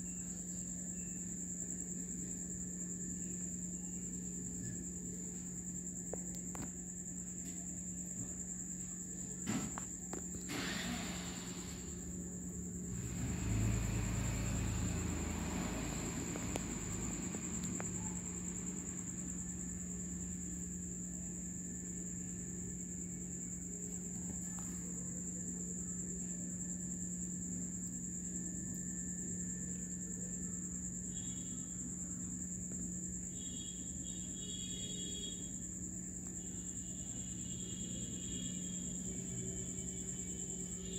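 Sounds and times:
crickets trilling: 0:00.0 - 0:40.9
low steady hum: 0:12.0 - 0:40.9.

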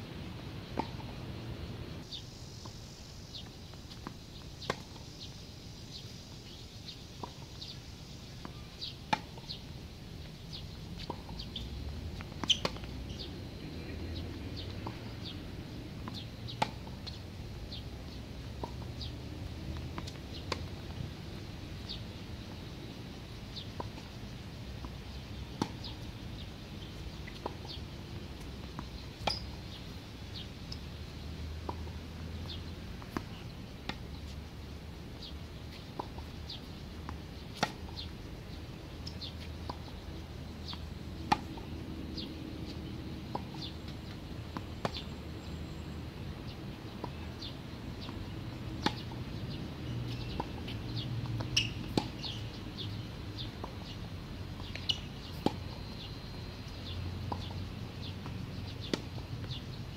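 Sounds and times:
tennis ball bouncing: 0:00.7 - 0:01.1, 0:08.4 - 0:09.6, 0:11.0 - 0:13.2, 0:16.0 - 0:17.2, 0:18.4 - 0:22.6, 0:24.8 - 0:26.1, 0:26.9 - 0:29.6, 0:31.6 - 0:34.3, 0:35.2 - 0:38.1, 0:40.6 - 0:45.0, 0:46.9 - 0:54.0, 0:54.6 - 0:55.7, 0:57.3 - 0:57.6, 0:58.2 - 0:59.6
tennis racket hitting ball: 0:48.8 - 0:49.1.

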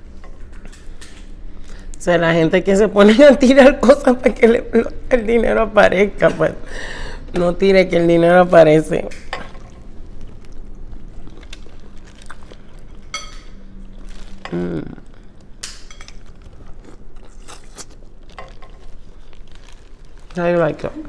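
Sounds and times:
plastic bag rustling: 0:09.6 - 0:21.0
wet clicks of peeling and chewing: 0:10.2 - 0:13.0, 0:15.6 - 0:18.9.

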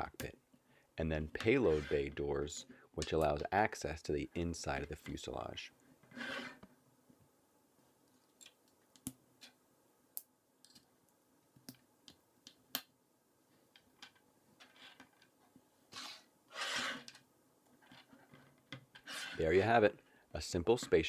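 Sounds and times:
parts scraping across table: 0:01.4 - 0:02.1, 0:06.1 - 0:06.7, 0:14.6 - 0:15.2, 0:15.9 - 0:17.2, 0:17.8 - 0:19.6.

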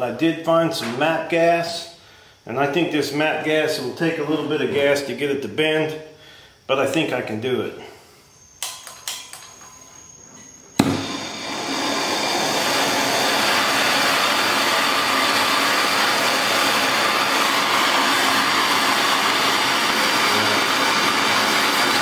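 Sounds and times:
gas torch hissing: 0:10.7 - 0:22.0
torch igniter click: 0:10.8 - 0:11.2.

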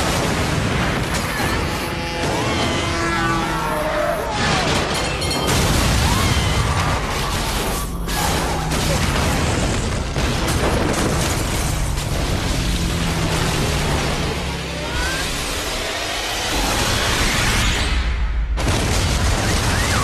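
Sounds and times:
buildings rumbling and crashing: 0:00.0 - 0:20.0
booms: 0:04.2 - 0:14.4, 0:16.7 - 0:20.0.

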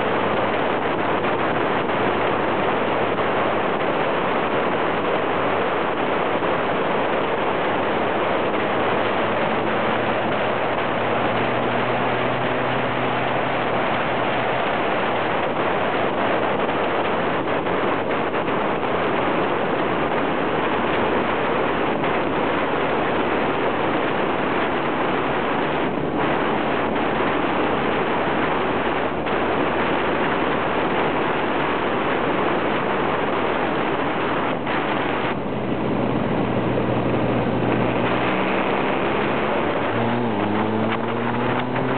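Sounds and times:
wind noise over microphone: 0:00.0 - 0:41.9
faint motorcycle engine: 0:35.3 - 0:41.9.

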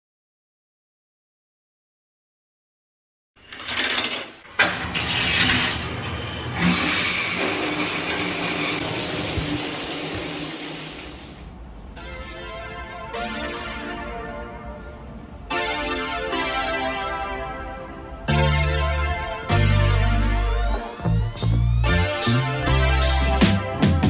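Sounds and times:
keyboard background music: 0:12.0 - 0:24.0.

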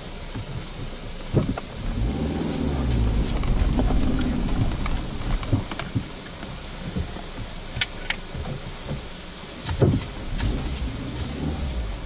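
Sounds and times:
gravel crunching under tyres: 0:00.0 - 0:12.0
heavy thump: 0:02.9 - 0:06.2, 0:08.4 - 0:10.7.

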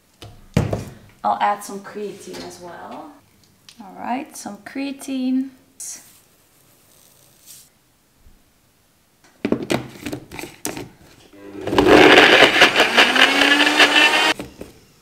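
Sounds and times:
blender running: 0:11.5 - 0:14.4.

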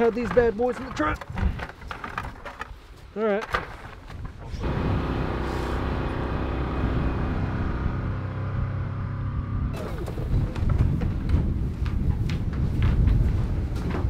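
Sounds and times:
utility vehicle engine rumbling: 0:04.5 - 0:12.3.

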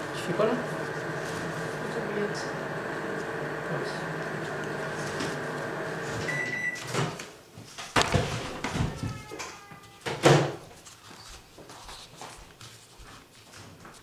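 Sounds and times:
machine hum: 0:00.0 - 0:06.8
short high beep: 0:06.3 - 0:06.8.

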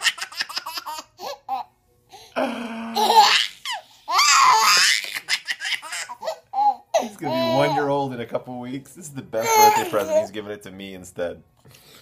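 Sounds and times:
baby laughing: 0:00.0 - 0:01.7, 0:02.9 - 0:07.9, 0:09.4 - 0:10.3.

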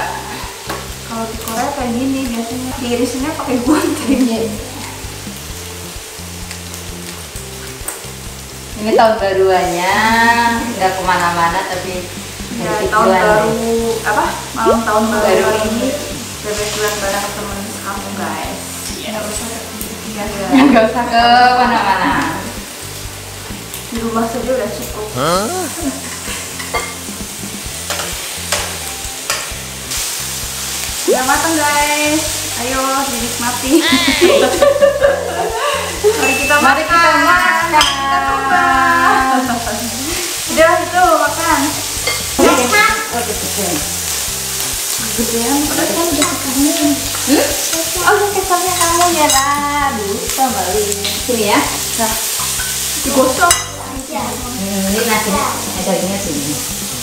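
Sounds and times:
meat sizzling in a pan: 0:00.0 - 0:57.0
tongs clicking on pan: 0:27.8 - 0:29.6, 0:42.0 - 0:42.3, 0:44.6 - 0:49.6, 0:50.3 - 0:51.3, 0:52.2 - 0:53.8.

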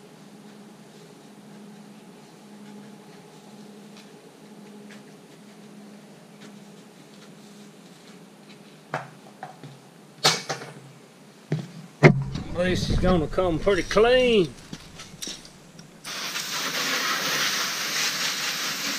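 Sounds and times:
sharp knock: 0:12.0 - 0:15.2
steady low hum: 0:12.0 - 0:16.0.

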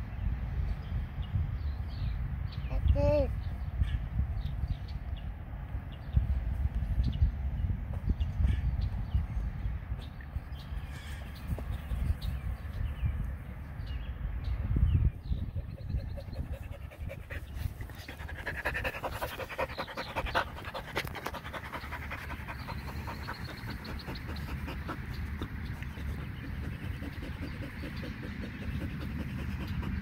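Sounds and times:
dog panting: 0:15.6 - 0:30.0.

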